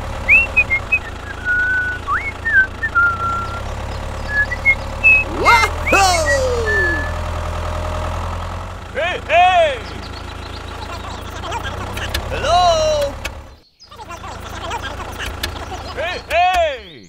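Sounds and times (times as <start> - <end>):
tractor engine drone: 0.0 - 17.0
high whistled chirps: 0.3 - 7.2.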